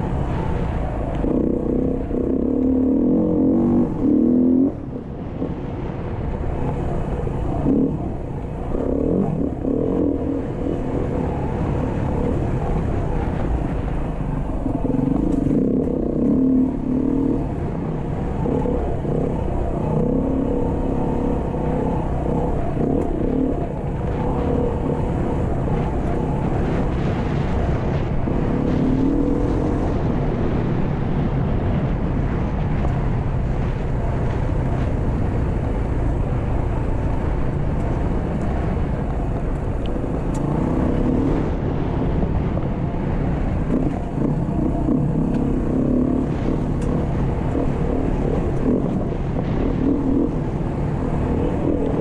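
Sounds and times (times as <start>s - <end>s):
dirt bike engine revving: 1.3s - 4.8s, 43.7s - 52.0s.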